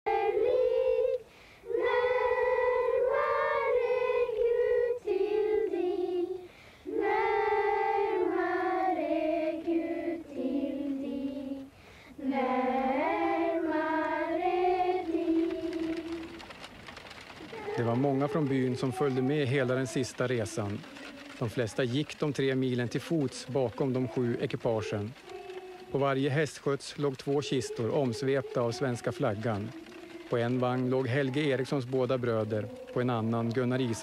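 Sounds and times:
choir of high voices singing: 0.1s - 16.2s.

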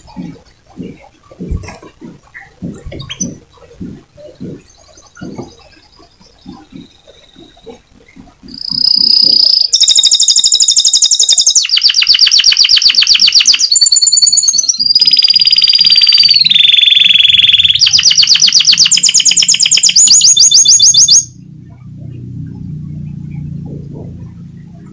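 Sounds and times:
canary singing: 2.3s - 21.4s.

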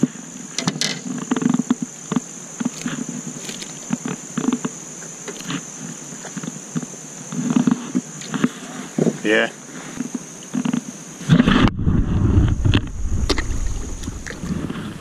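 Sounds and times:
high insect drone: 0.0s - 15.0s.

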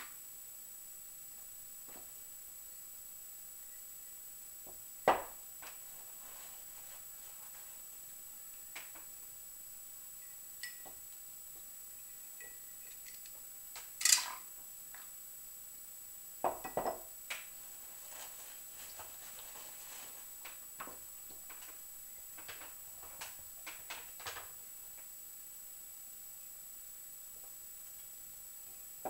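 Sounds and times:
small parts and tools clinking: 10.2s - 11.0s, 12.4s - 14.5s.

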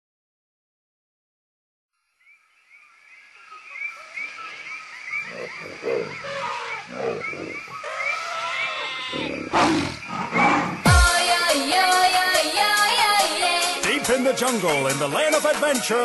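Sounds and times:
animal growls and roars: 5.2s - 10.9s.

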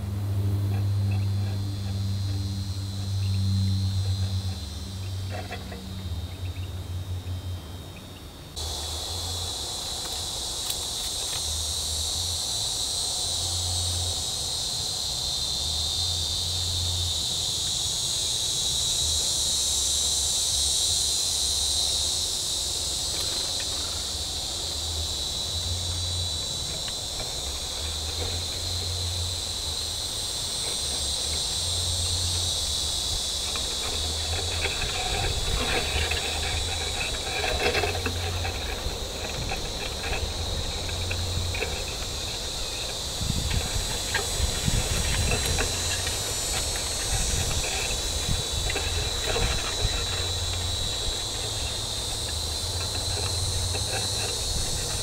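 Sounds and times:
crickets and insects trilling: 0.0s - 55.0s
crackling and rustling: 26.2s - 55.0s.

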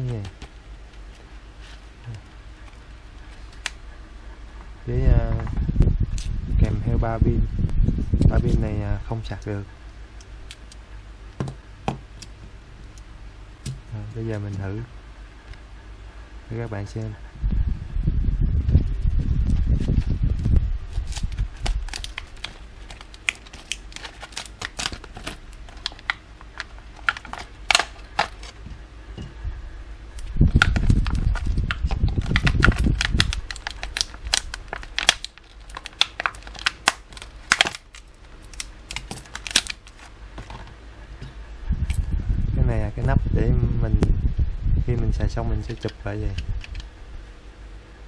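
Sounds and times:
low rumbling handling bumps: 4.6s - 8.7s
plastic packaging crackling: 20.9s - 28.6s, 30.2s - 40.7s.

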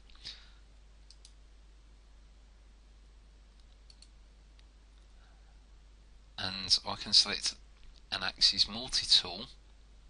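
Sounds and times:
computer mouse clicks: 1.0s - 1.4s, 3.5s - 4.7s.

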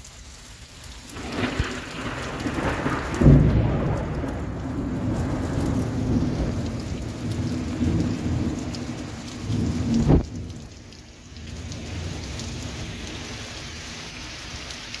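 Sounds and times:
heavy rain pouring: 0.0s - 15.0s
low rolling thunder: 1.1s - 10.8s.

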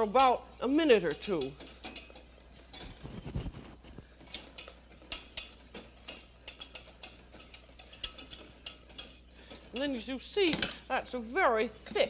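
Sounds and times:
whisk scraping metal saucepan: 0.0s - 12.0s.

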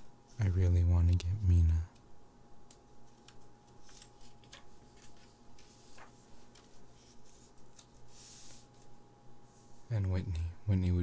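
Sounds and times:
paper rustle: 3.0s - 9.0s.

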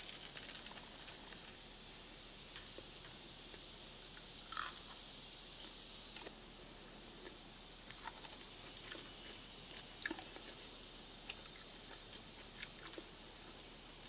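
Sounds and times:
crisp crust crackling: 0.0s - 1.6s
faint steady hiss: 0.0s - 14.0s.

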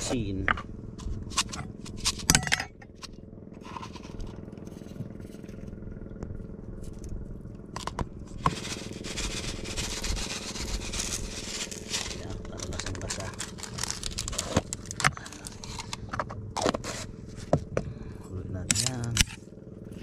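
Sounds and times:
steady low hum: 0.0s - 20.0s
plastic sachet crinkling: 8.5s - 15.9s.

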